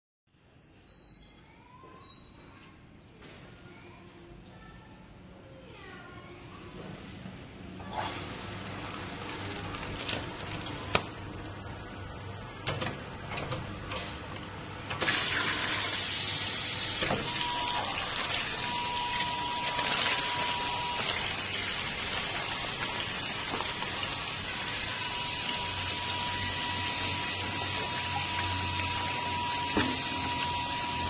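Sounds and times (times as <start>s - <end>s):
machine clicks and knocks: 12.6s - 15.1s.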